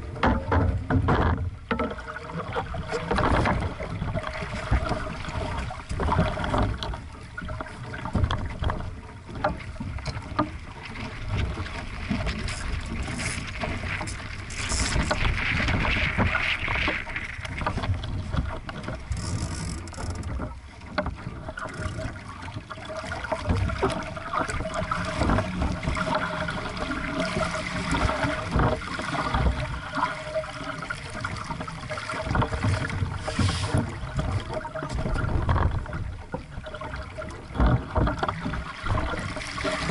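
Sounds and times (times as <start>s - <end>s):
water rushing along a hull: 0.0s - 39.9s
chop knocking against hull: 0.2s - 2.0s.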